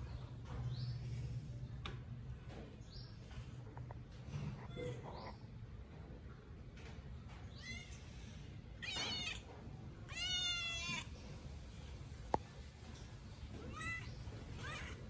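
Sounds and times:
cat meowing: 0:10.1 - 0:11.1.

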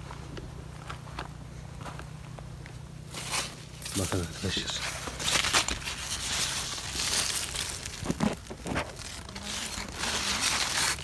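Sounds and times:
leaves and stems rustling: 0:03.0 - 0:11.0.

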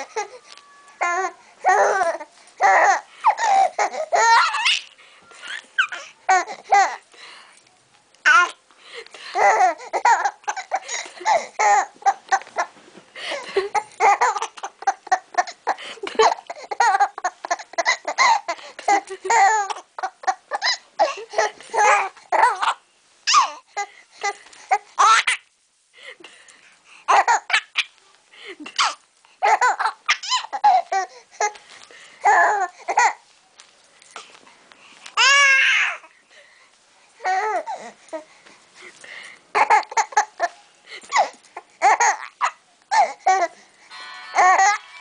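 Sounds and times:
infant laughing: 0:00.0 - 0:07.0, 0:09.3 - 0:25.4, 0:27.1 - 0:27.9, 0:28.6 - 0:31.6, 0:32.2 - 0:33.2, 0:39.5 - 0:43.6.

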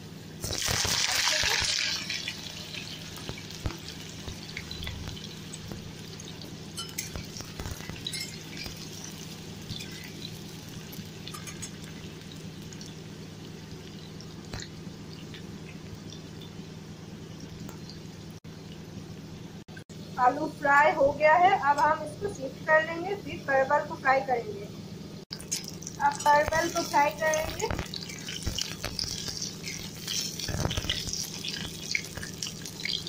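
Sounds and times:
low steady hum: 0:00.0 - 0:33.0
potatoes sizzling in oil: 0:00.4 - 0:16.6, 0:25.4 - 0:33.0.

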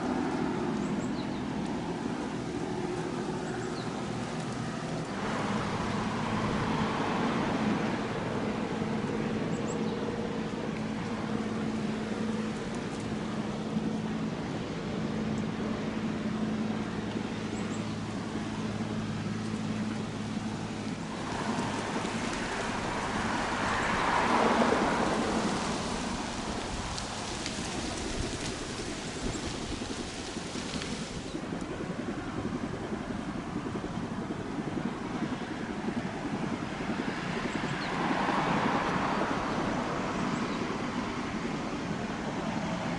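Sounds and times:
engine droning: 0:00.0 - 0:42.9
rush of noise: 0:20.3 - 0:32.4.

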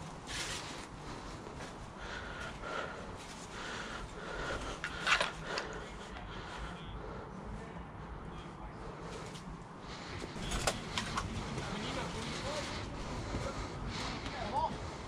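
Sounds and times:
clothing and gear rustling: 0:00.0 - 0:01.9
breathing: 0:00.3 - 0:15.0.

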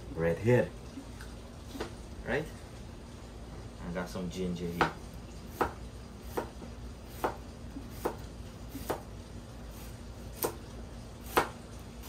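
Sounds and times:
knife chopping: 0:04.7 - 0:09.1, 0:09.7 - 0:10.6, 0:11.2 - 0:11.6.

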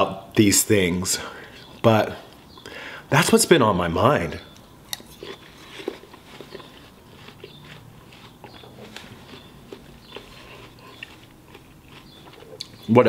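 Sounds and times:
man chewing watermelon: 0:04.5 - 0:13.0.

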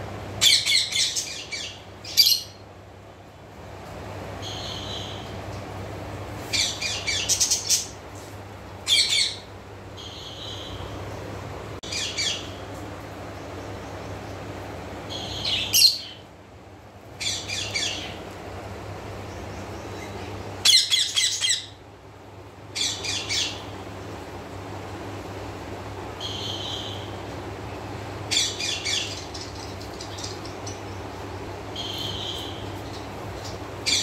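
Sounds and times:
steady low hum: 0:00.0 - 0:34.0
parakeets chirping and squawking: 0:06.5 - 0:08.0, 0:08.8 - 0:11.0, 0:11.8 - 0:12.6, 0:15.1 - 0:16.2, 0:17.2 - 0:18.2, 0:19.9 - 0:21.8, 0:22.8 - 0:23.7, 0:28.3 - 0:31.0, 0:31.8 - 0:34.0.

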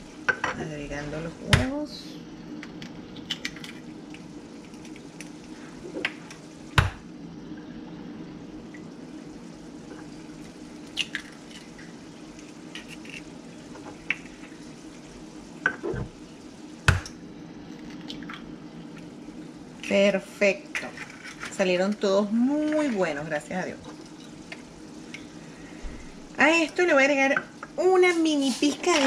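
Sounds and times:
faint sizzle of frying pan: 0:00.0 - 0:29.0
steady low hum: 0:00.0 - 0:29.0
eggshell cracking on bowl: 0:02.6 - 0:05.4, 0:10.9 - 0:13.3.

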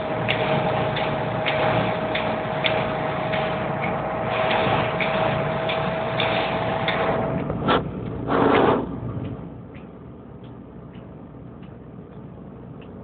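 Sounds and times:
road noise hiss: 0:00.0 - 0:13.0
windscreen wiper ticks: 0:09.2 - 0:13.0.

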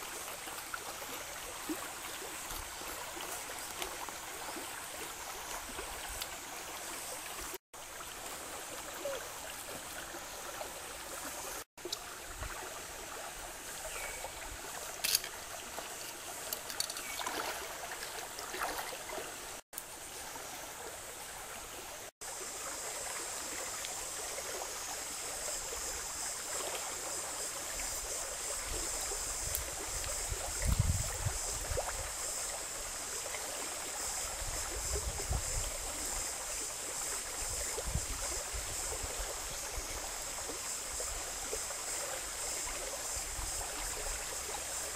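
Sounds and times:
stream running over rocks: 0:00.0 - 0:44.9.

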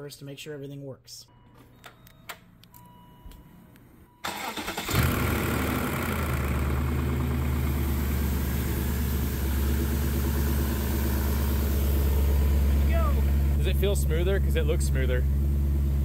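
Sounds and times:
car engine cranking and idling: 0:04.2 - 0:16.0.

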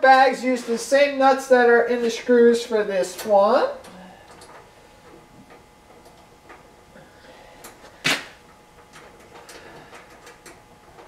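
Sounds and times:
faint metal clicks and ticking: 0:08.5 - 0:11.0.

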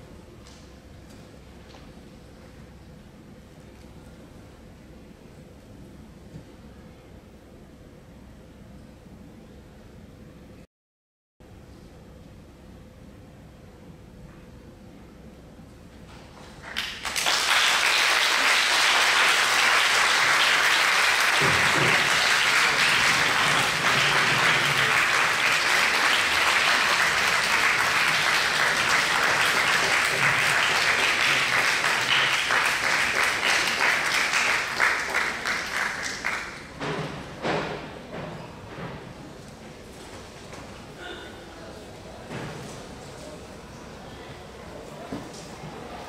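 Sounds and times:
audience applauding: 0:16.6 - 0:36.8.

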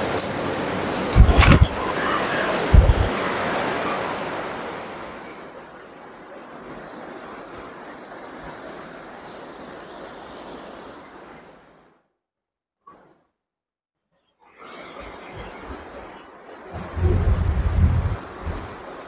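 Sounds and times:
heavy rain pouring: 0:00.6 - 0:04.9.

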